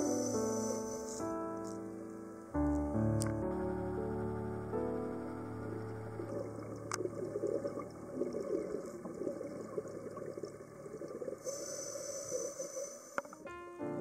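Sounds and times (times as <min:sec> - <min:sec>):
high hiss: 0:00.0 - 0:06.6, 0:11.4 - 0:13.5
air bubbles gurgling underwater: 0:06.2 - 0:11.5.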